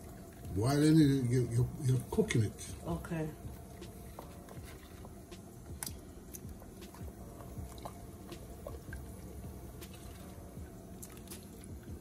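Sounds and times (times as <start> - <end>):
wet squishing and dripping: 3.5 - 12.0.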